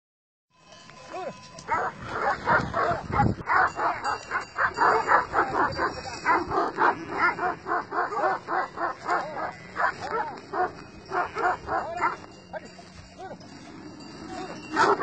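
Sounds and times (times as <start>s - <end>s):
dogs barking: 1.6s - 12.4s, 14.4s - 15.0s.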